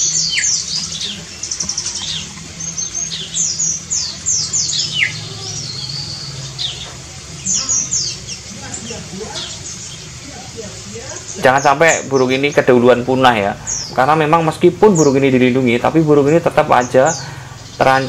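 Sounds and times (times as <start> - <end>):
bird chirping and whistling: 0.0 - 10.1.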